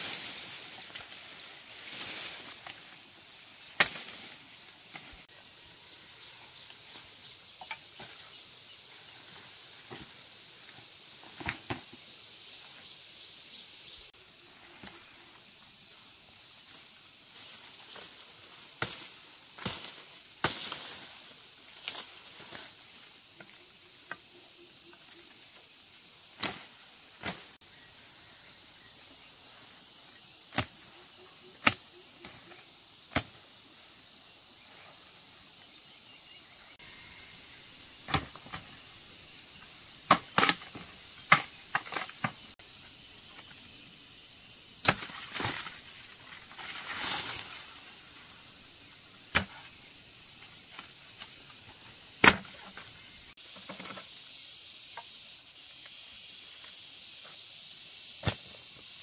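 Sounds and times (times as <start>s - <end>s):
machete chopping sugarcane: 3.8s - 4.2s, 18.8s - 21.0s, 30.5s - 30.8s, 31.6s - 31.9s, 33.1s - 33.4s, 38.0s - 38.6s, 40.1s - 42.4s, 44.8s - 45.7s, 49.3s - 49.6s, 52.2s - 52.8s, 58.2s - 58.5s
high-pitched insect drone: 33.8s - 40.0s.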